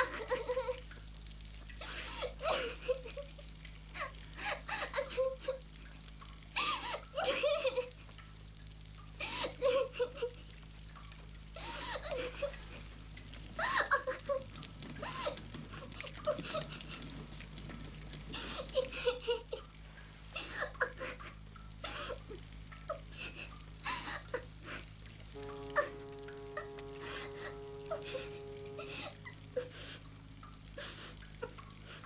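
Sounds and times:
low steady hum: 0.0s - 32.0s
rustling and crackling: 14.3s - 18.9s.

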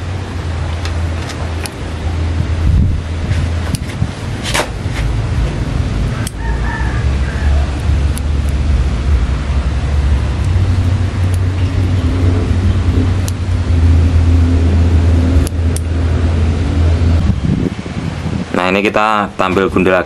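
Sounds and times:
low engine rumble: 0.0s - 20.0s
scissors snipping twigs: 6.1s - 6.5s, 7.5s - 8.6s, 10.4s - 12.0s, 13.2s - 13.4s.

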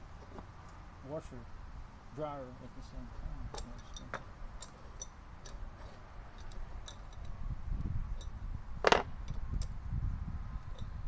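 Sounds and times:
metal hardware clinking on wood: 3.4s - 7.4s.

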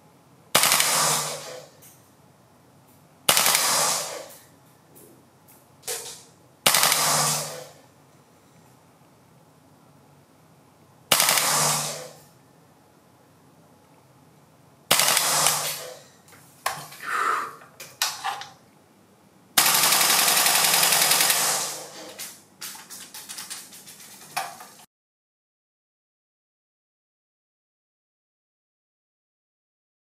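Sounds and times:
airsoft rifle firing bursts: 0.6s - 1.6s, 3.3s - 4.4s, 6.6s - 7.8s, 11.1s - 12.2s, 14.9s - 16.0s, 19.6s - 22.0s
single sharp shots: 0.6s - 1.6s, 3.3s - 4.4s, 6.6s - 7.8s, 11.1s - 12.2s, 14.9s - 15.9s.

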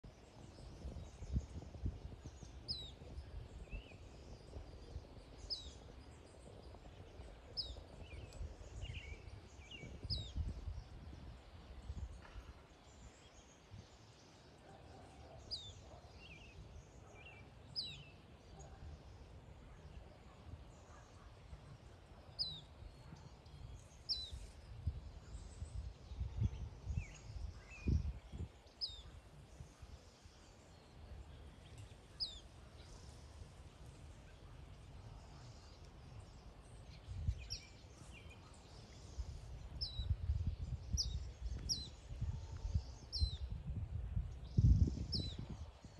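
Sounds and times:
gusty low wind rumble: 0.0s - 14.0s, 21.5s - 30.4s, 34.9s - 38.0s, 38.8s - 45.9s.

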